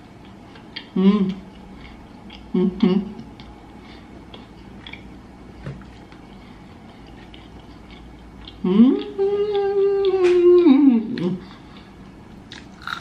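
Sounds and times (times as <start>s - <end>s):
woman humming: 0.9s - 1.4s, 2.5s - 3.2s, 8.6s - 11.4s.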